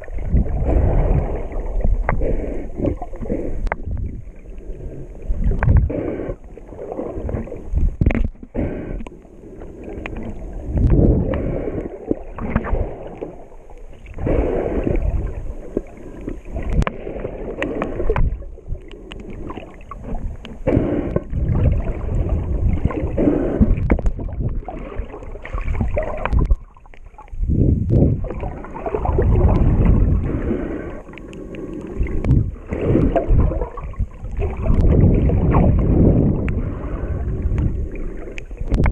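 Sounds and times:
underwater water sloshing: 0.0s - 38.9s.

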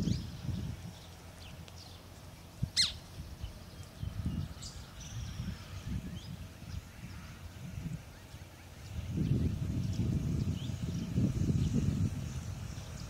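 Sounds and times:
bird chirps and calls: 0.0s - 11.8s.

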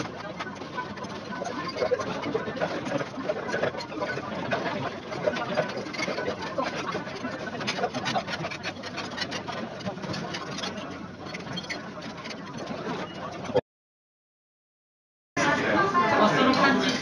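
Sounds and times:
background chatter: 0.0s - 13.6s, 15.4s - 17.0s.

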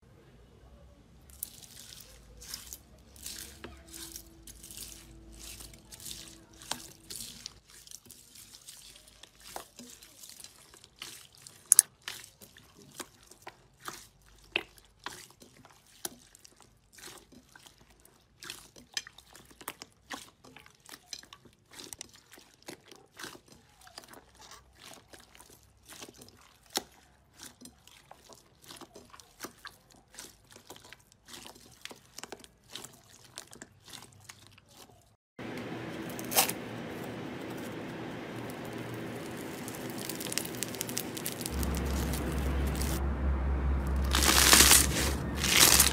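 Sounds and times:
slime squelching and popping: 1.3s - 35.1s, 38.4s - 43.0s, 43.9s - 45.9s
foam slime hissing and crackling: 36.1s - 43.0s, 44.0s - 45.9s.

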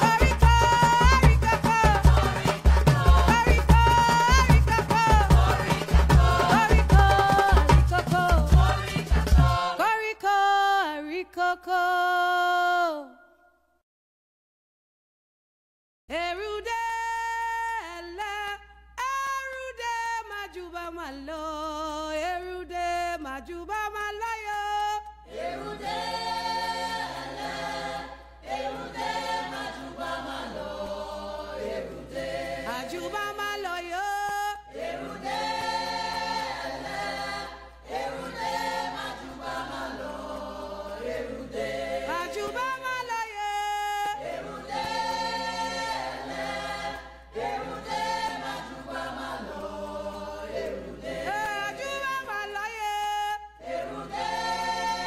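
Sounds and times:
choir singing unaccompanied: 0.0s - 10.0s, 25.3s - 43.0s, 44.0s - 52.1s, 53.6s - 55.0s.

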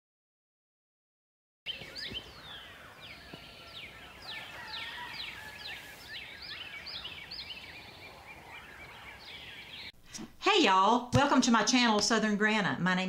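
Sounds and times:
birds chirping: 1.7s - 10.0s
faint outdoor hiss: 1.7s - 13.0s.

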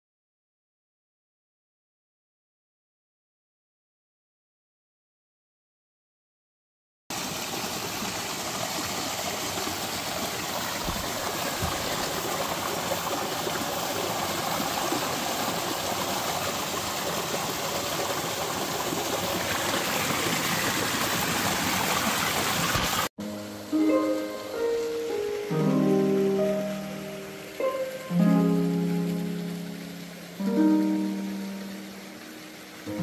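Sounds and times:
stream rushing over rocks: 7.1s - 33.0s.

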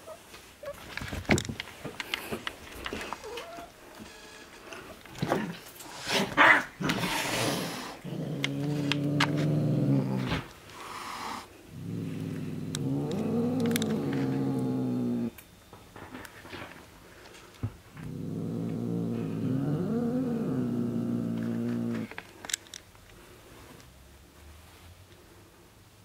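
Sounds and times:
cat growling: 5.2s - 15.4s, 18.0s - 22.2s.

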